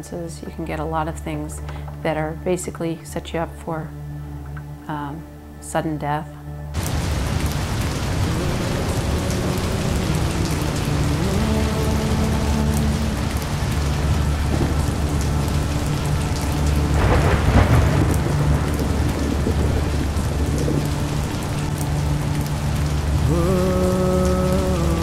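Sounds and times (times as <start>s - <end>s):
heavy rain: 6.8s - 25.0s
thunder: 17.0s - 20.9s.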